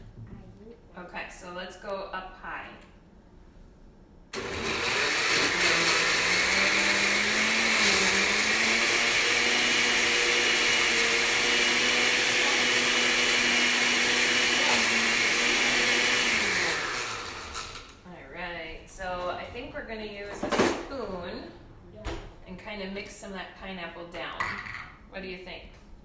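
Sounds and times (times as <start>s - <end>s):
blender running on high: 4.4s - 18.0s.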